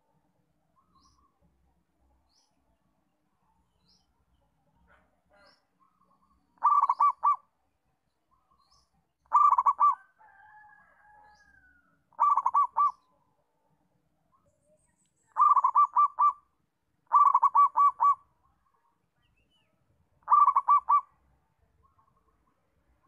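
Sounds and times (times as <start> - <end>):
small bird chirping: 0.7 - 2.7, 3.6 - 10.0, 11.3 - 13.3, 14.2 - 22.7
dove cooing: 6.6 - 7.5, 9.3 - 10.2, 12.1 - 13.1, 15.4 - 18.3, 20.2 - 21.2.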